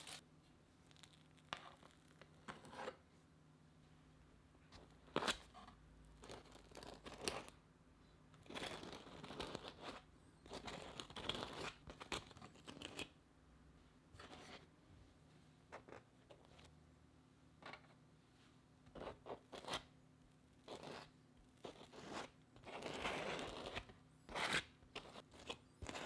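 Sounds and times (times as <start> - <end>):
knife scraping bread: 1.0 - 3.0, 5.1 - 7.5, 8.4 - 13.2, 18.9 - 19.9, 20.5 - 26.0.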